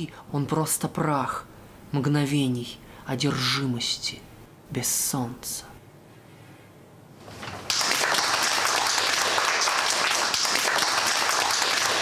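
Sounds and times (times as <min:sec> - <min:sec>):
audience applauding: 0:07.5 - 0:12.0.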